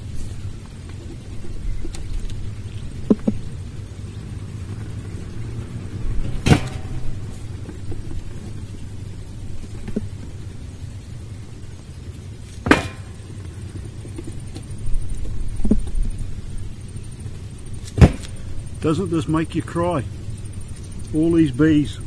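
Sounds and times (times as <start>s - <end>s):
steady low rumble: 0.0s - 22.0s
wooden frames knocking on metal: 12.7s - 13.2s.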